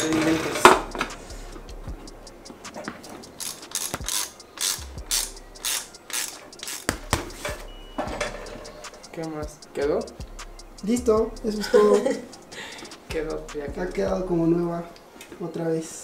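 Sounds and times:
wrench ratcheting rasp: 3.4s - 6.9s.

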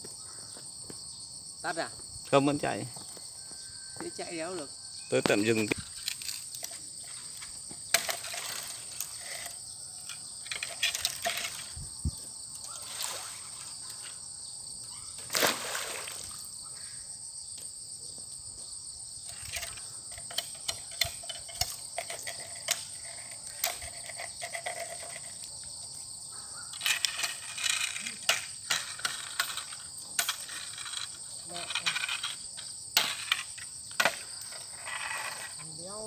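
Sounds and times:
insects chirring: 0.0s - 36.0s.

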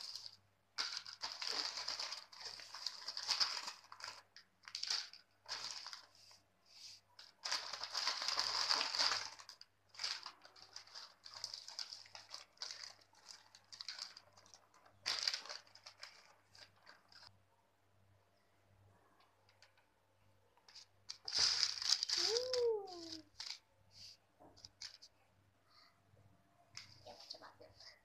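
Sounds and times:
crinkling of a foil chip packet: 0.0s - 6.2s, 7.2s - 17.3s, 20.7s - 23.6s, 24.6s - 25.1s.

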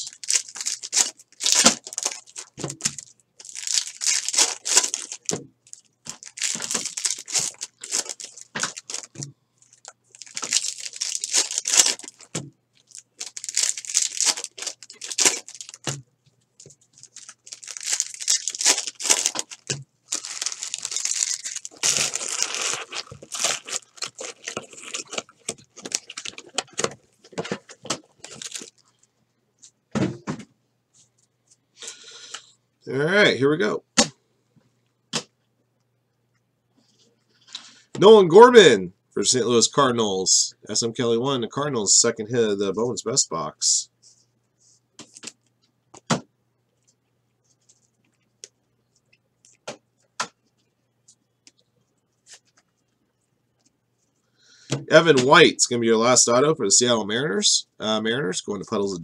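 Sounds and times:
foil wrappers tearing and crinkling: 0.0s - 16.0s, 16.6s - 27.0s, 28.2s - 28.8s.

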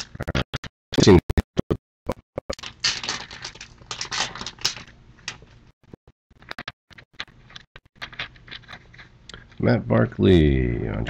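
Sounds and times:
foil wrapper crinkling: 2.6s - 5.7s.

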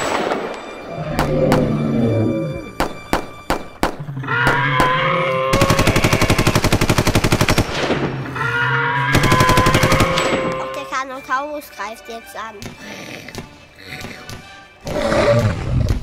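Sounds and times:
machine-gun burst: 5.5s - 8.0s, 9.1s - 10.4s.

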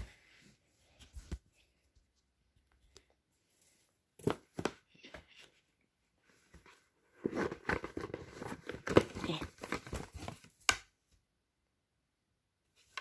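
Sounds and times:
cardboard rustling and scraping: 6.3s - 10.6s.

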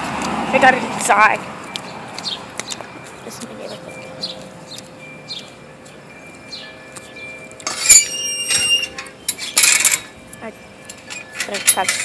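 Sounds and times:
high metallic ringing tones: 2.9s - 12.0s.

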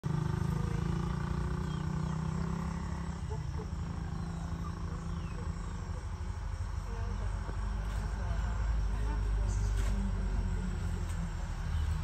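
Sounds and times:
faint bird chirps: 0.5s - 6.3s.

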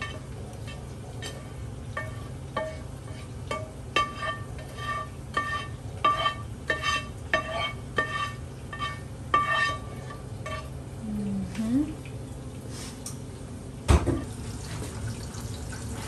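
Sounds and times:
utensil scraping metal frying pan: 0.0s - 10.8s
low steady hum: 0.0s - 16.0s.

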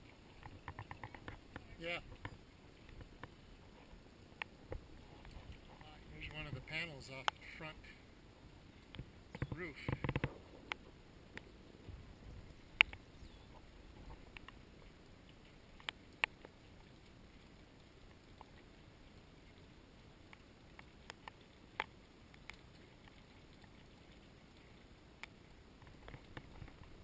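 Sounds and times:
sharp ticks and clicks: 0.3s - 3.4s, 8.9s - 11.5s, 12.8s - 13.0s, 14.3s - 14.6s, 15.2s - 17.2s, 20.3s - 24.0s.

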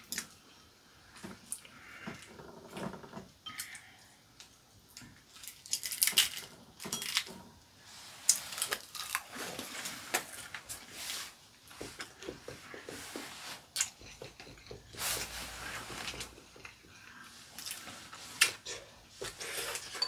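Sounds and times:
chopsticks tapping ceramic bowls: 13.8s - 15.0s.

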